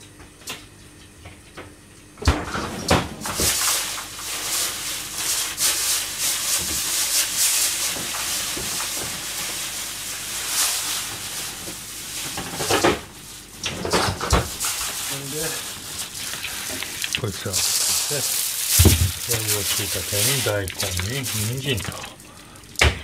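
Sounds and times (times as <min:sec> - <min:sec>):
water rushing and hissing: 0:16.1 - 0:22.2.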